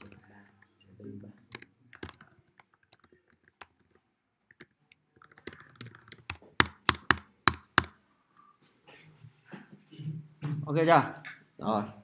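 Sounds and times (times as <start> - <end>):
keyboard typing: 0.0 - 8.0.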